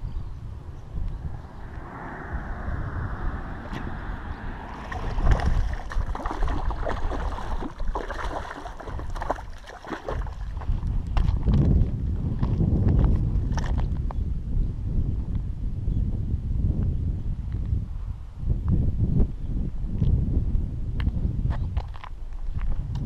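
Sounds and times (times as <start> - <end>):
wind rumbling on microphone: 0.0 - 23.0
fish splashing at water surface: 4.7 - 10.5.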